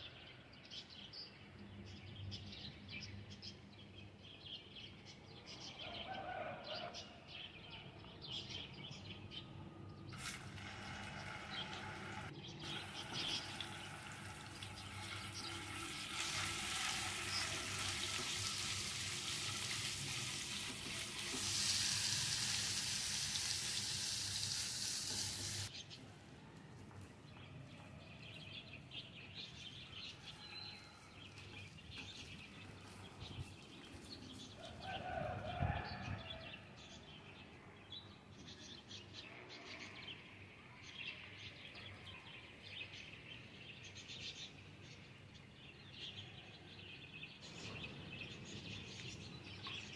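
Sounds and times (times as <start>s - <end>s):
birds chirping: 0.0s - 26.0s
meat sizzling in hot oil: 10.1s - 25.7s.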